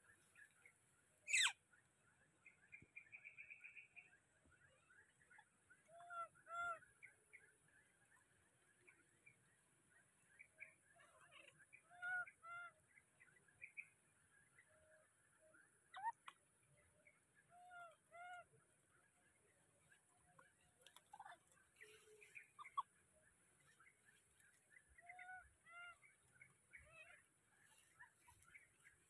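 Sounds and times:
baby monkey calling: 1.3 - 1.5.

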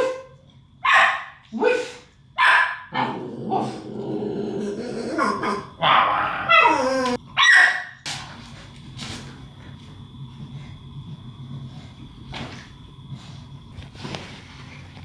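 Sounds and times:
puppy barking: 0.0 - 3.0, 7.4 - 8.0
puppy growling: 2.9 - 7.2.

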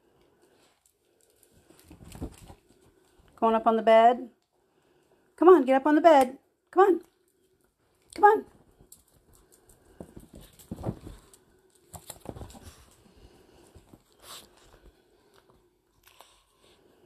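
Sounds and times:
dogs soft thumps and rustling: 1.7 - 3.0, 8.6 - 14.9.

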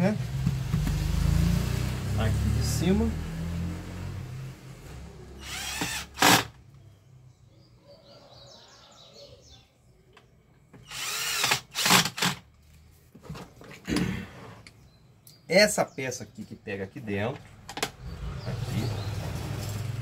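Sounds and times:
drill motor whining: 5.4 - 6.5, 10.8 - 12.4.

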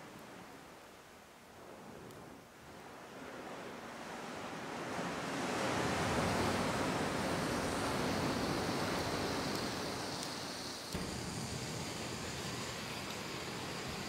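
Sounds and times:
waves rushing into a rocky cave: 3.7 - 14.0.

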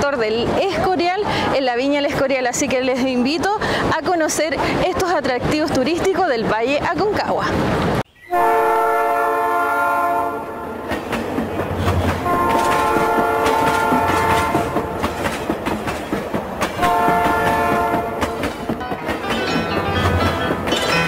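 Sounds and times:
locomotive air horn blasts: 8.3 - 10.8, 12.2 - 15.0, 16.8 - 18.4
train wheels clattering over rail joints: 10.8 - 21.0.

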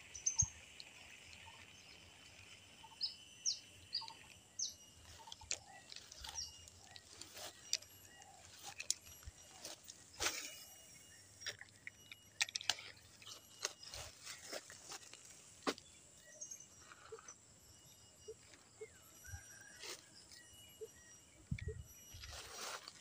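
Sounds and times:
faint high chirps: 0.0 - 23.0.

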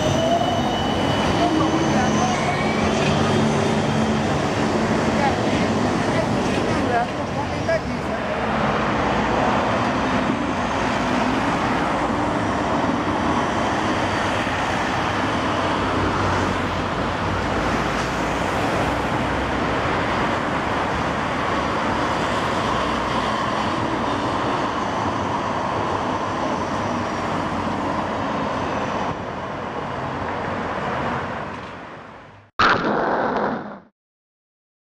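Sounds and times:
cars passing: 1.0 - 32.3.

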